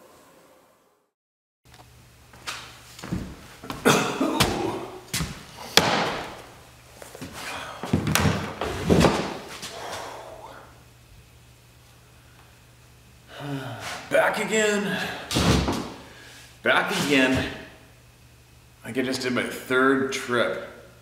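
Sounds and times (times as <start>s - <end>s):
footsteps: 2.3s - 10.1s
sharp knocks: 5.8s - 6.4s.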